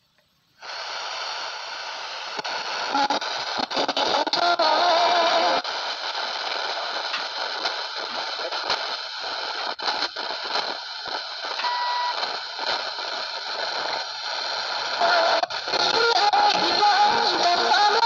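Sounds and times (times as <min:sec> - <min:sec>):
radio static hiss with crackle: 0:00.0 - 0:18.0.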